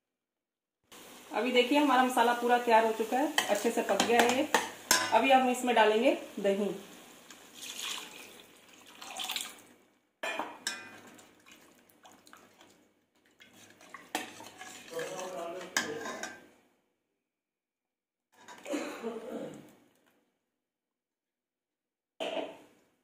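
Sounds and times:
steel ladle scraping a pan: 13.4 - 16.4.

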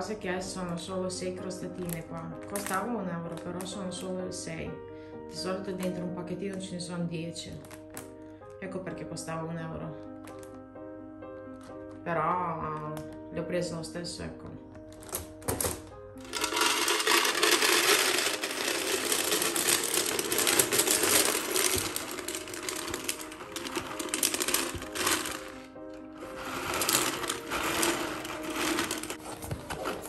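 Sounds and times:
dry pasta rattling into plastic: 1.8 - 3.5, 15.0 - 30.0.

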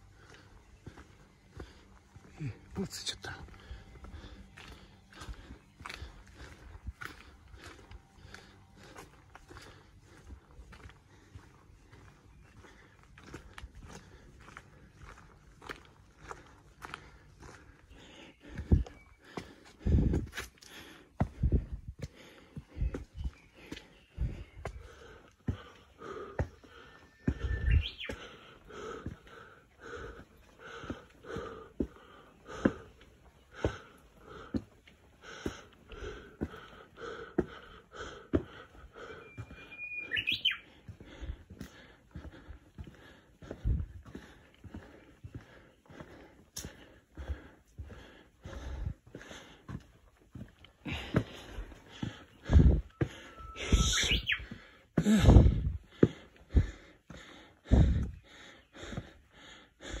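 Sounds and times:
heavy rhythmic panting: 0.0 - 39.7, 40.6 - 60.0
footsteps on stone: 0.0 - 60.0
rising bird chirp: 26.8 - 28.4, 39.1 - 40.8, 52.3 - 54.6
short bird whistle: 39.6 - 40.6, 53.4 - 54.4.

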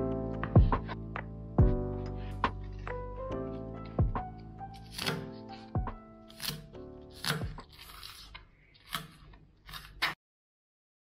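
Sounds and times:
background music with soft beat: 0.0 - 7.8
knife slicing on cutting board: 4.7 - 10.2.

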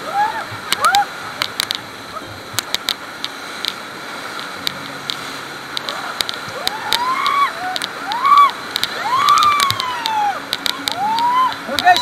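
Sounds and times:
water splashing: 0.0 - 12.0
whitewater rushing: 0.0 - 12.0
people shouting: 5.9 - 11.6.

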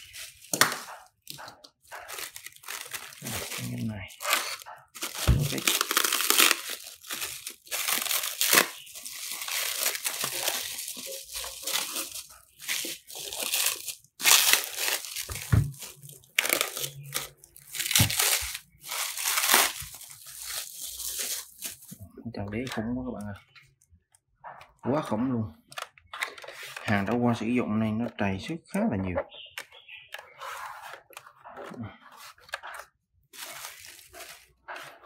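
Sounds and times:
plastic bag crinkling and tearing: 0.0 - 22.0, 33.4 - 35.0.

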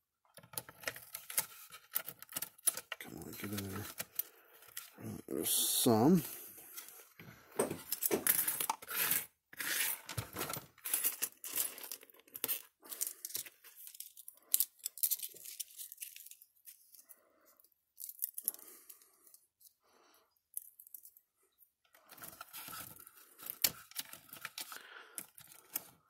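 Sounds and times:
thin metal parts scraping and clicking: 7.9 - 17.0.

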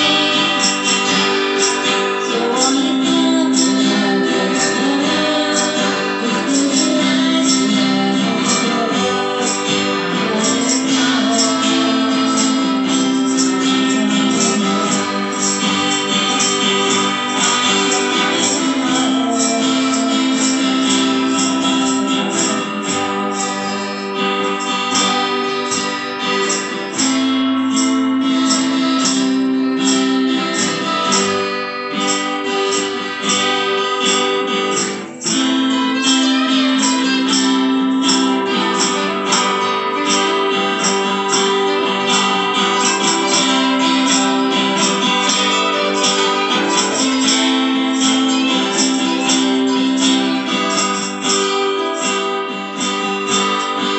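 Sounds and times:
acoustic guitars strumming: 0.0 - 53.9.

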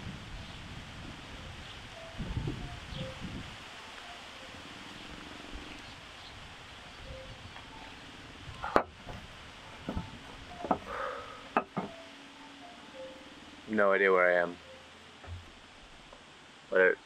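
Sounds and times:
outdoor background hiss: 0.0 - 17.0
sharp knocks near microphone: 11.6 - 12.0, 15.2 - 15.5.

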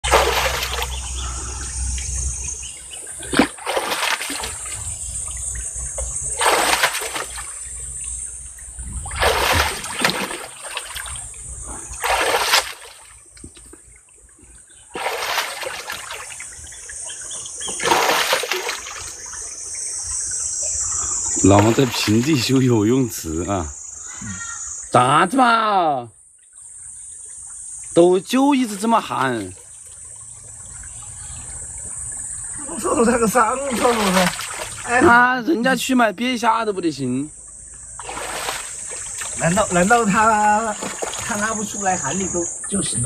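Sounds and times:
hand splashing water: 0.0 - 1.3, 3.2 - 4.8, 6.1 - 7.6, 9.0 - 13.2, 14.9 - 16.6, 17.6 - 19.2, 33.3 - 35.0, 38.0 - 41.6
stream rushing: 0.0 - 2.6, 8.8 - 13.2, 14.9 - 16.6, 38.0 - 42.7.

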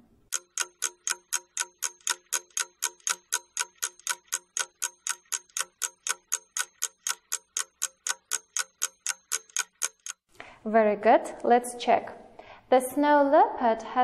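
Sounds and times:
ticking clock timer: 0.3 - 10.2.

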